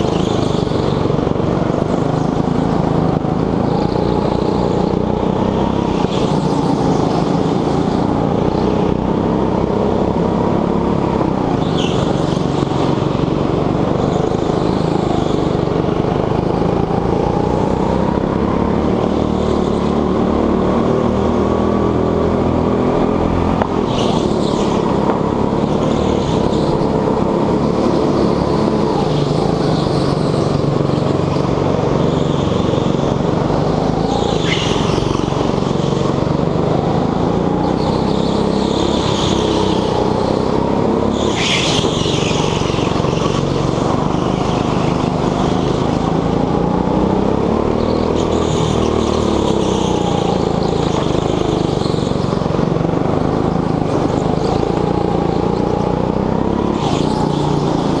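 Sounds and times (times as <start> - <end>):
go-kart engine running hard: 0.0 - 58.0
tyres squealing on concrete: 37.1 - 52.5.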